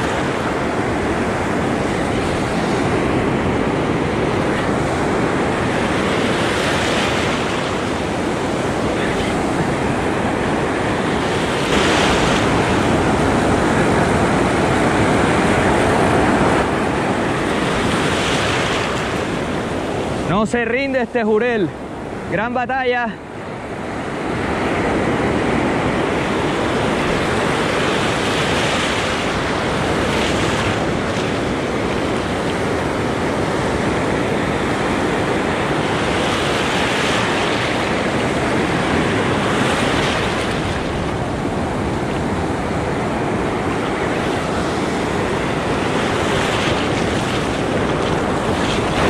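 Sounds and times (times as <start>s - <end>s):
surf breaking and washing: 0.0s - 49.0s
wind rushing over microphone: 0.0s - 49.0s.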